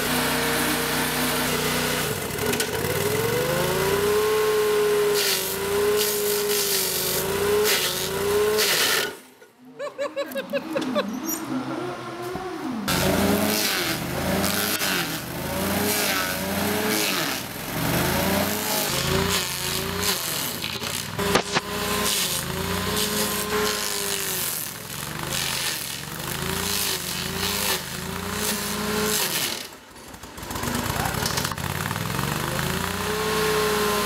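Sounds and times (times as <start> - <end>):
stump grinder engine under load: 0.0 - 9.2, 12.9 - 34.0.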